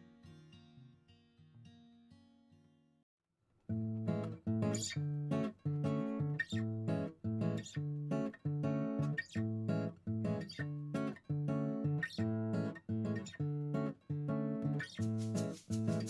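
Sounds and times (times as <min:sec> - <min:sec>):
acoustic guitar strumming chords: 0:03.8 - 0:16.0.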